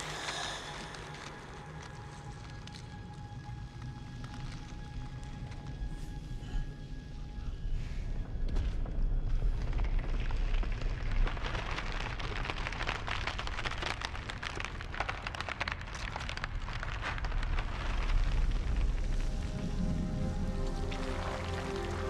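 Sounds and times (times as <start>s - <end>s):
deep rumble: 0.0s - 22.0s
dense crackling and crumbling: 0.0s - 22.0s.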